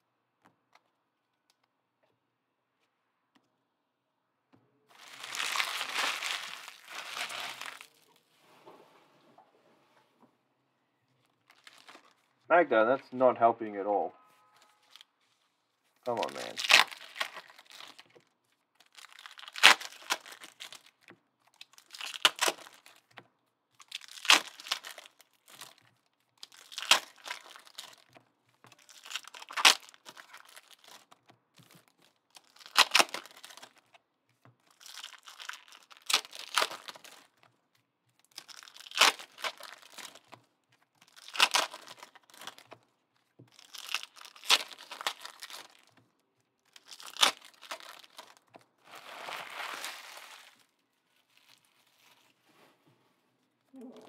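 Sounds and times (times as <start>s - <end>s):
card pack wrapper ripping: 4.9s - 8.1s, 11.4s - 12.3s, 16.1s - 18.2s, 18.8s - 23.1s, 23.8s - 28.1s, 28.8s - 33.9s, 34.6s - 37.4s, 38.2s - 40.4s, 41.0s - 42.8s, 43.4s - 46.0s, 46.6s - 52.2s
wrapper crinkling: 4.9s - 8.3s, 11.1s - 12.5s, 14.6s - 52.5s.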